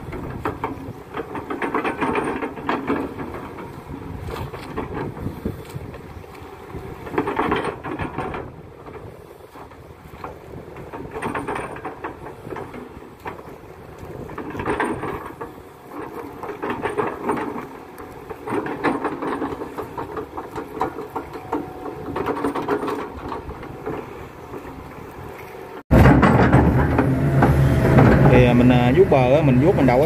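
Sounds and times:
clanking and rattling of bucket linkage: 0.0 - 6.0, 7.0 - 24.0, 25.9 - 30.0
excavator engine running: 11.0 - 30.0.

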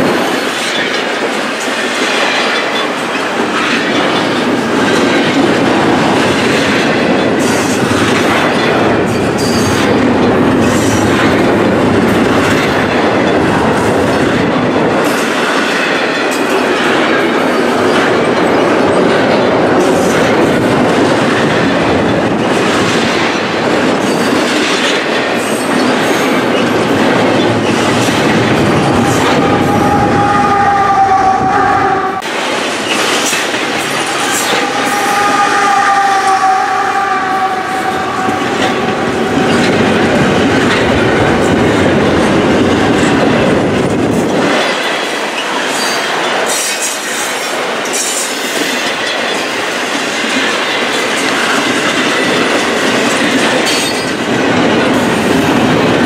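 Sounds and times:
rail joint clicks: 0.0 - 56.0
train wheels clattering on rails: 0.0 - 56.0.

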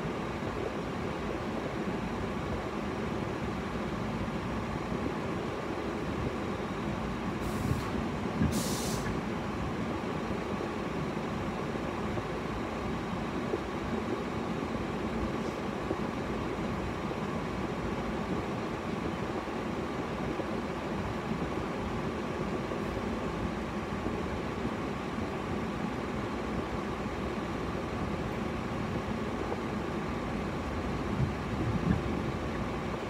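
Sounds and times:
car cabin hum and hiss: 0.0 - 33.0
short hisses: 7.4 - 9.2.

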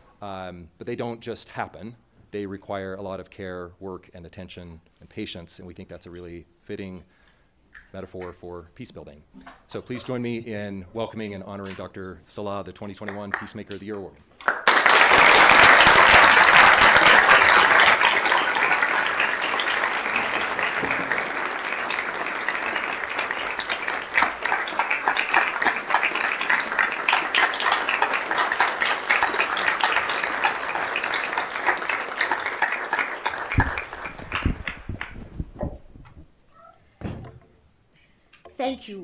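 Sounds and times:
audience applauding: 14.4 - 35.5.

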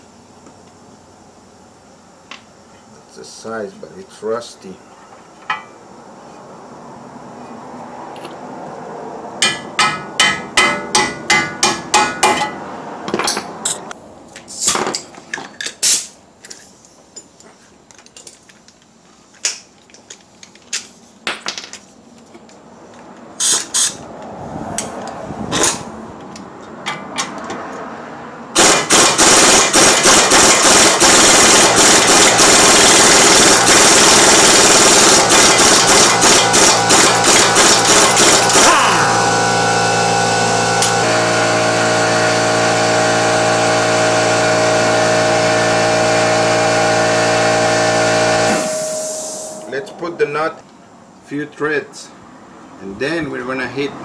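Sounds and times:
sharp metal clanks: 9.4 - 12.6
impact wrench rattling: 28.6 - 39.3.

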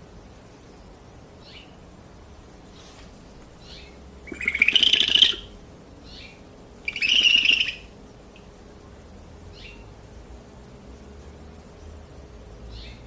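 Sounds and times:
owl raspy calls: 3.6 - 7.9.

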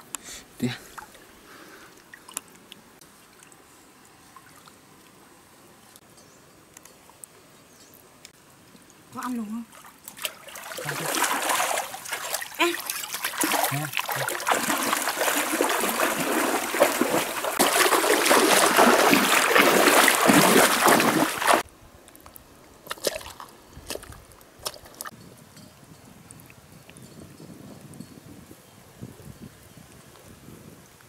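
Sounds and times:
water splashing and churning: 9.2 - 21.7, 22.8 - 25.1.

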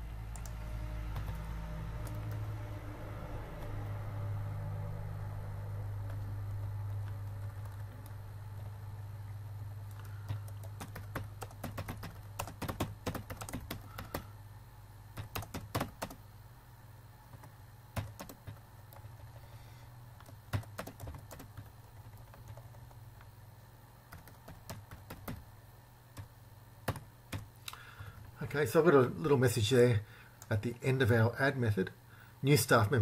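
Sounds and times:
steady low hum: 0.0 - 33.0
keyboard typing: 0.3 - 2.5, 6.0 - 8.8, 9.9 - 14.3, 15.2 - 16.2, 17.3 - 19.4, 20.2 - 23.3, 24.1 - 25.5, 26.1 - 27.5.

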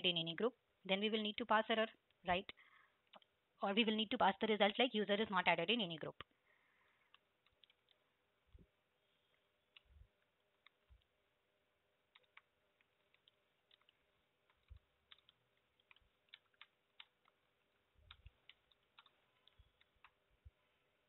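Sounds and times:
faint keyboard typing: 2.0 - 3.4, 6.1 - 11.4, 12.0 - 21.0.

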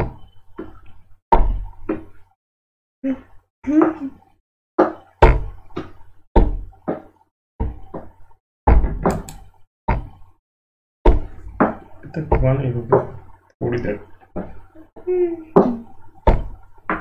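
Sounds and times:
knocks and thumps: 4.8 - 10.3, 11.1 - 13.4, 14.1 - 14.7, 15.5 - 17.0.

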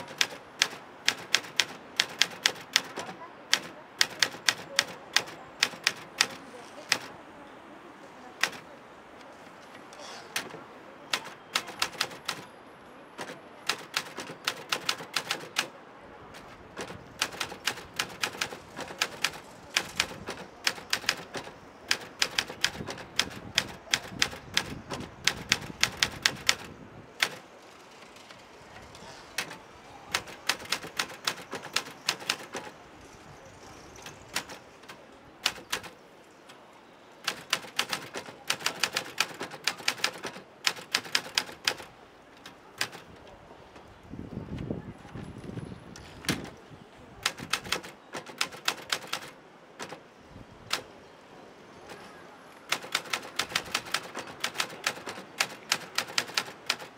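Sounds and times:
typewriter keys clacking: 0.0 - 7.1, 8.4 - 8.6, 10.4 - 12.5, 13.2 - 15.7, 16.4 - 27.4, 29.4 - 32.8, 34.0 - 35.9, 37.2 - 43.2, 47.2 - 50.0, 52.7 - 56.9.

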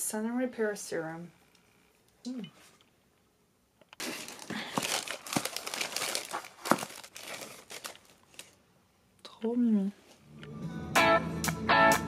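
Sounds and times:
tissue paper crinkling: 4.0 - 8.6.

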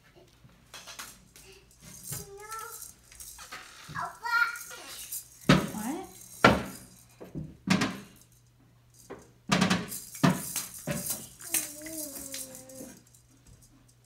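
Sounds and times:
toys knocking and clattering: 0.7 - 8.2, 9.0 - 14.0
small child's voice: 1.4 - 3.0, 3.9 - 5.1, 11.3 - 13.0.

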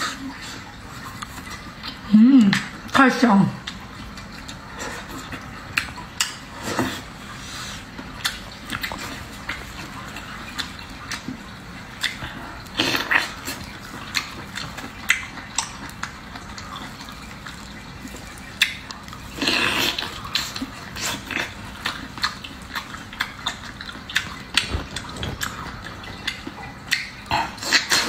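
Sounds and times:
wet eating mouth sounds: 0.0 - 28.0.

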